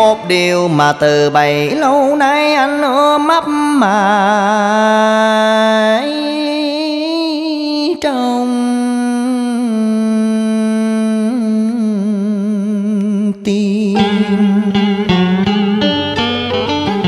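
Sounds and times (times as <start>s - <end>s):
plucked guitar: 0.0s - 3.1s, 13.7s - 17.0s
man singing long notes: 0.0s - 17.0s.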